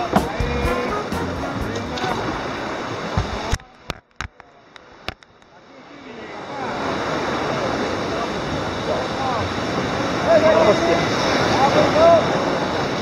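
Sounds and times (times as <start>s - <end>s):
sea water sloshing against rocks: 1.7s - 5.4s.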